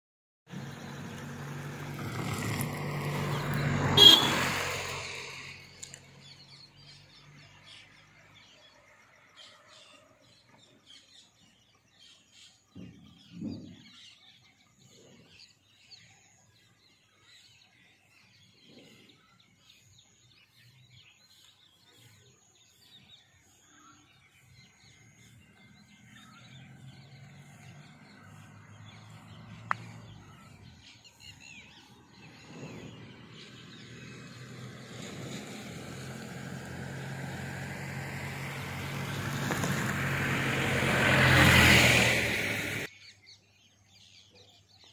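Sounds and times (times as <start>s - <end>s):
engine rumble: 0.5s - 8.4s, 25.5s - 42.9s
birds chirping: 0.5s - 44.9s.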